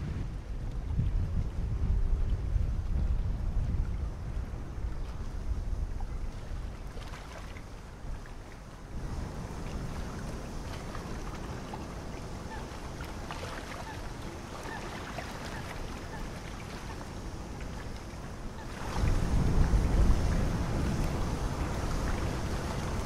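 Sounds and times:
wind buffeting microphone: 0.0 - 23.0.

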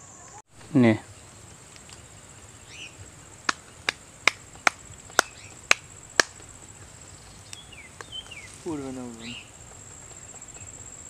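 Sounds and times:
bird chirps: 0.0 - 11.0
high insect whine: 0.0 - 11.0.

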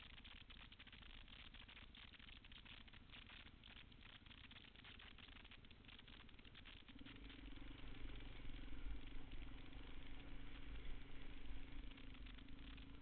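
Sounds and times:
motorcycle engine running: 5.8 - 13.0.

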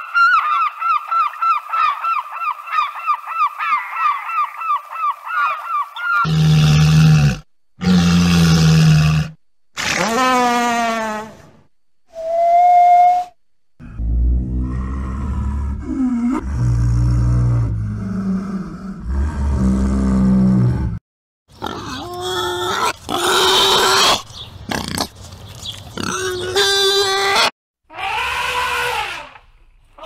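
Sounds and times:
animal calling high wavering calls: 26.4 - 29.4.

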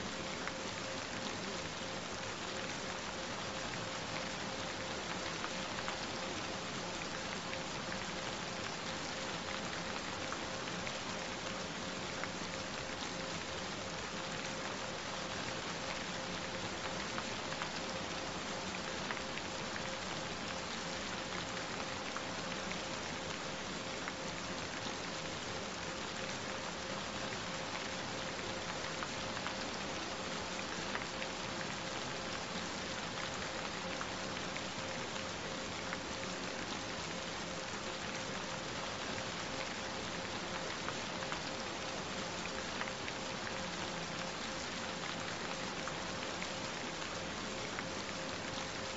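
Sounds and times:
steady rain falling: 0.0 - 48.9.

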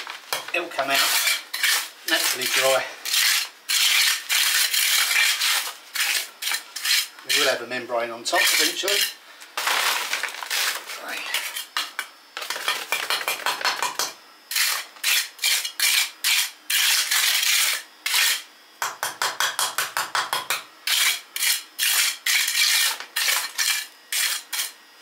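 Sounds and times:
trowel scraping wet stones: 0.3 - 13.4, 14.5 - 18.5, 20.9 - 24.8.

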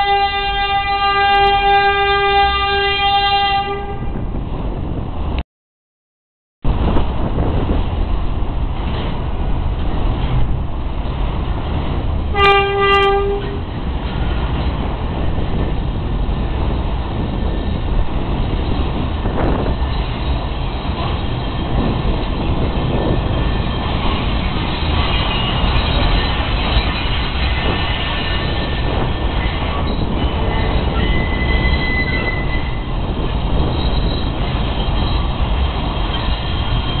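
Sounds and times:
subway train horn toot: 0.0 - 4.2, 12.3 - 13.7, 25.0 - 32.9
train cars rumbling and rattling: 0.0 - 5.4, 6.6 - 37.0
faint high wheel squeal: 23.0 - 32.9, 33.6 - 37.0.

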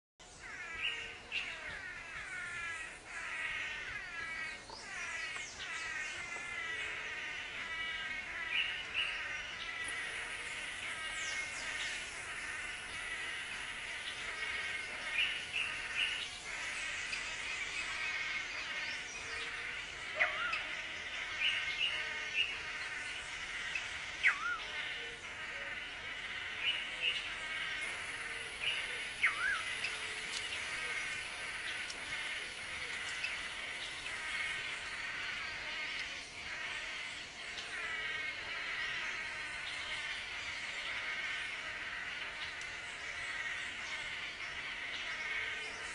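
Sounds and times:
buzzing insect chorus: 0.3 - 45.9
manakins calling: 0.3 - 45.9.

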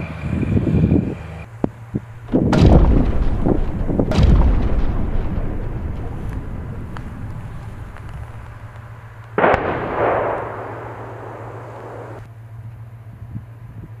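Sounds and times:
distant shell explosion boom: 2.2 - 12.2
rolling echo: 2.2 - 12.3.

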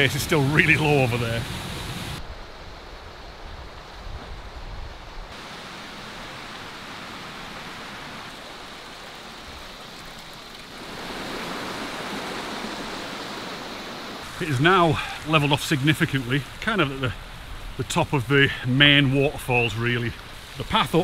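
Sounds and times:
stream rushing over rocks: 0.0 - 2.2, 5.3 - 21.0.

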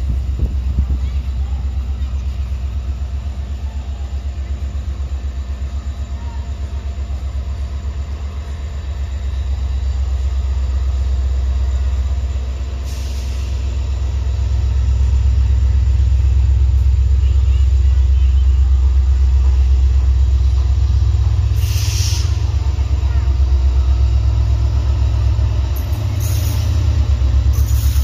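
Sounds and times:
diesel locomotive engine rumble: 0.0 - 28.0
brief hiss: 12.8 - 13.7, 21.5 - 22.4.

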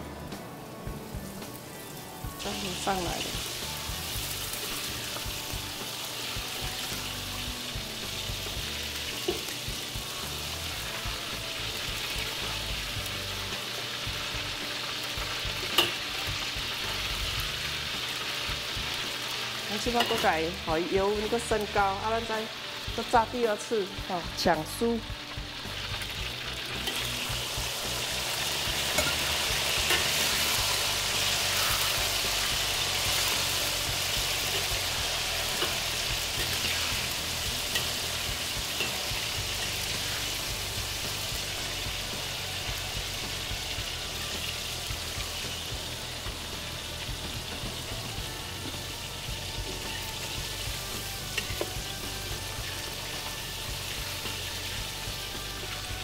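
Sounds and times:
meat sizzling in hot oil: 0.2 - 56.0
ladle clicking in wok: 15.6 - 16.0, 28.4 - 30.6, 35.4 - 40.3.

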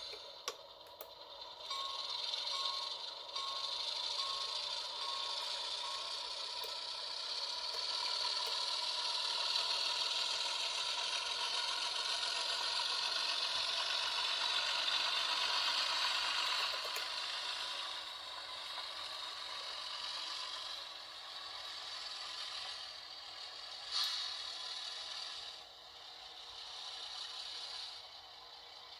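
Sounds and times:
model train whirring and rattling: 0.0 - 28.9.

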